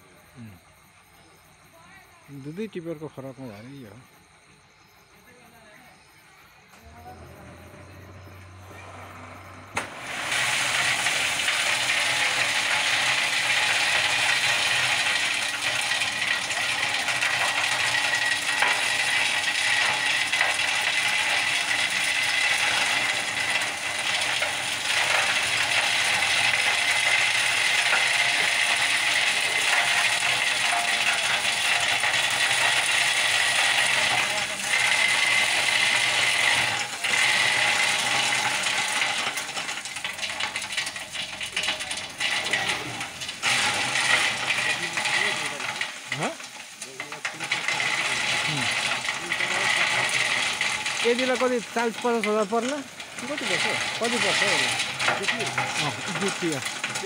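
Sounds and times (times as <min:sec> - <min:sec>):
thin steady whine: 0:03.5 - 0:14.7
gravel pouring from truck bed: 0:06.8 - 0:57.0.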